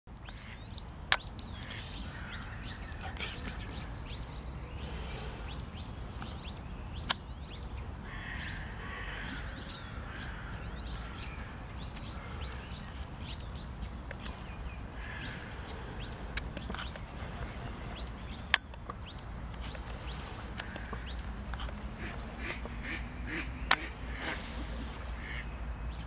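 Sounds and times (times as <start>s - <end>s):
birds chirping: 0.1s - 26.0s
sharp clicks: 14.0s - 14.4s, 18.3s - 22.7s.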